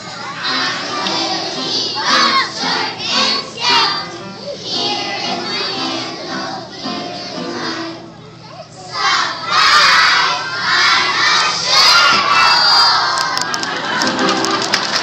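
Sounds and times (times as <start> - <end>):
children singing: 0.0 - 8.0, 8.9 - 13.1
children shouting together: 8.4 - 13.5.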